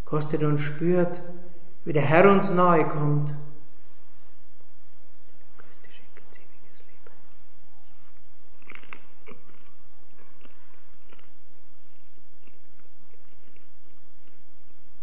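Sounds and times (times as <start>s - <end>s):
person chewing crunchy wafer: 8.6s - 14.4s.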